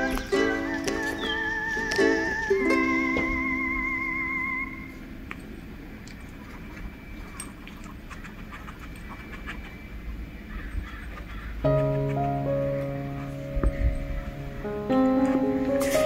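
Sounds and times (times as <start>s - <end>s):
held music chord: 0.0s - 5.6s, 11.6s - 16.0s.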